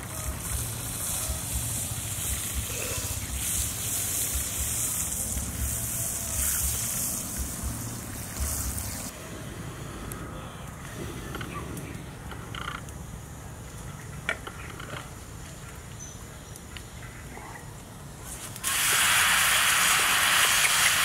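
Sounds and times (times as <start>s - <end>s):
liquid sizzling in a pan: 0.0s - 9.1s, 18.4s - 21.0s.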